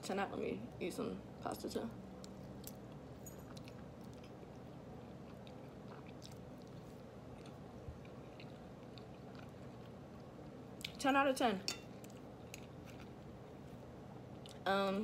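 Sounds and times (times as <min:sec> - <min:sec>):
low room hum: 0:00.0 - 0:15.0
chewing food: 0:02.2 - 0:11.0, 0:11.9 - 0:14.6.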